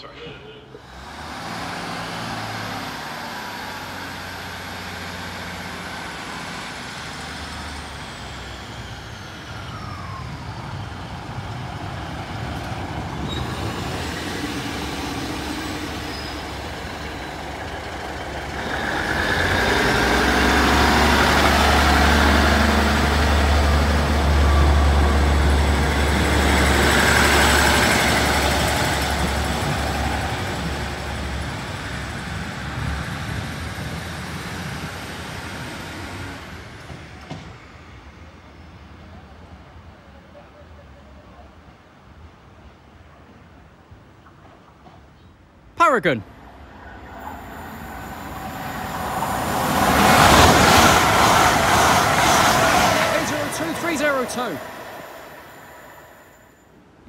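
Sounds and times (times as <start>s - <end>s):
train wheels on rails: 0.8s - 38.8s, 46.3s - 57.0s
diesel engine humming: 13.6s - 32.1s, 45.8s - 56.6s.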